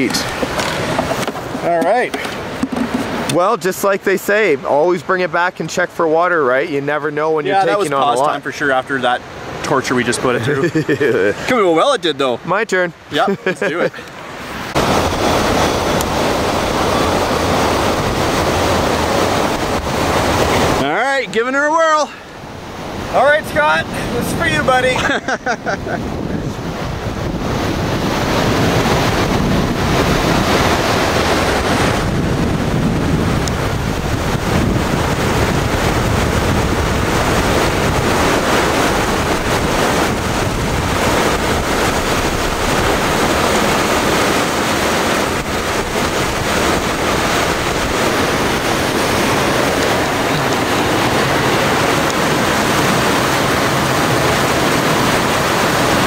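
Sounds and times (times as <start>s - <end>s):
water rushing: 0.0s - 56.0s
wind buffeting microphone: 14.4s - 20.9s, 22.3s - 56.0s.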